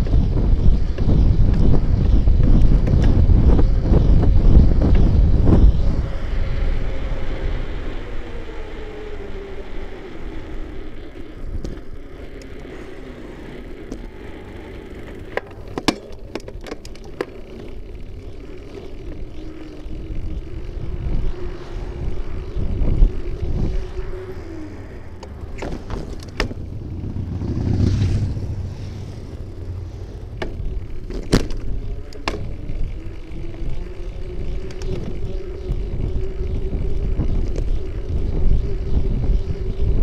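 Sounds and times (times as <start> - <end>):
bicycle ride rumble: 0.0 - 40.0
faint traffic hum: 0.0 - 40.0
wind buffeting microphone: 0.0 - 40.0
sharp clicks and rattles: 13.8 - 19.5.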